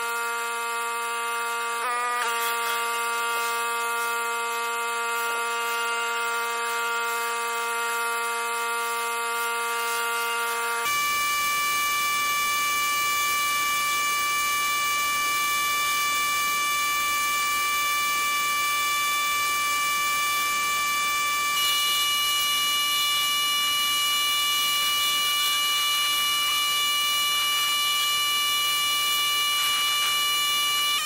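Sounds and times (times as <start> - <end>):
pressure washer whine: 0.0 - 31.0.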